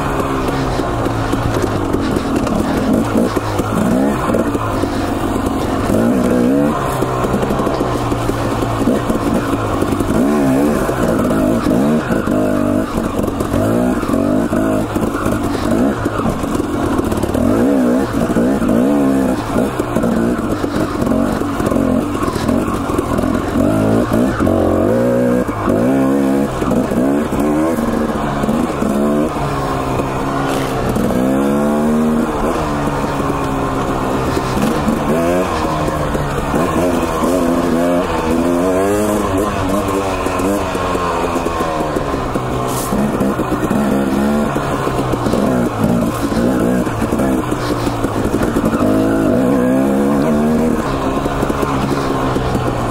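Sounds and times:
dirt bike engine revving: 0.0s - 52.9s.

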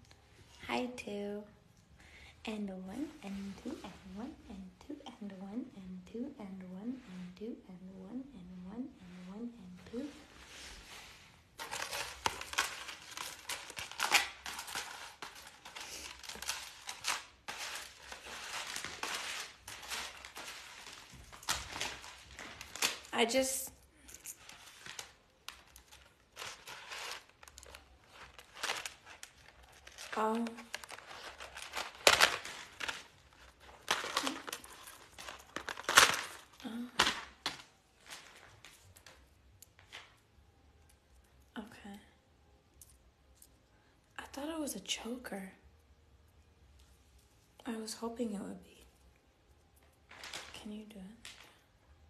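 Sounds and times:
cardboard packaging rustling: 11.5s - 23.3s, 24.2s - 39.2s.

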